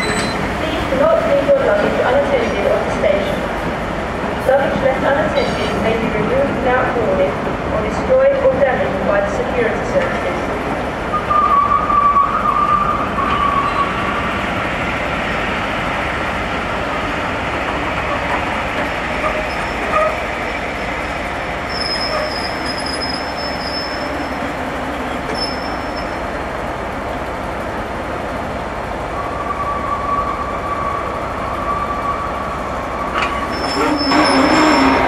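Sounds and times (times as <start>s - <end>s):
high-pitched wheel squeal: 0.0s - 0.5s, 11.1s - 14.2s, 21.7s - 24.3s, 25.3s - 26.2s, 33.2s - 35.0s.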